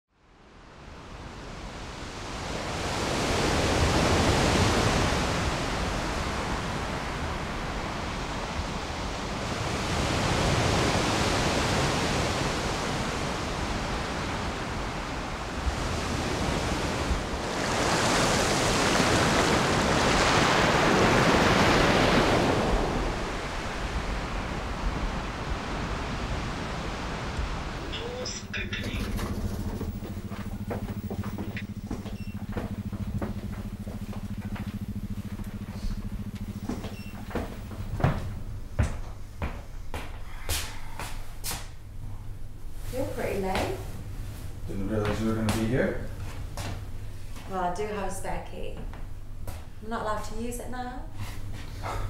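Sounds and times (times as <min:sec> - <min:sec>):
wind: 0:00.1 - 0:48.2, 0:48.8 - 0:52.0
surf breaking against rocks: 0:02.5 - 0:30.3.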